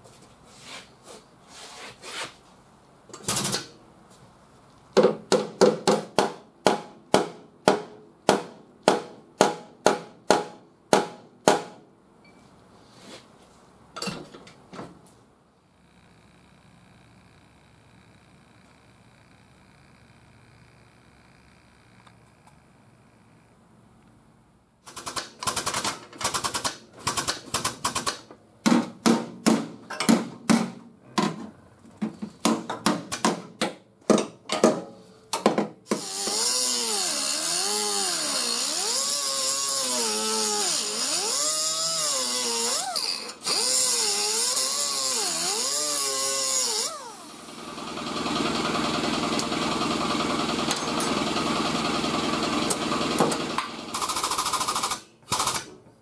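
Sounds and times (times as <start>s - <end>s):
cut-off wheel grinding steel: 36.0s - 52.0s.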